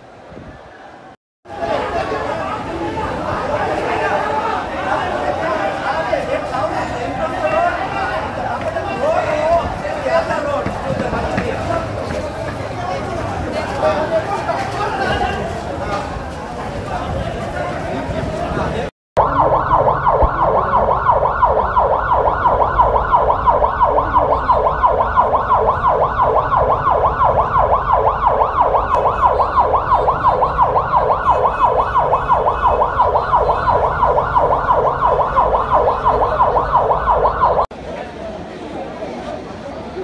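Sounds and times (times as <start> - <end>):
emergency siren yelping: 19.2 - 37.7.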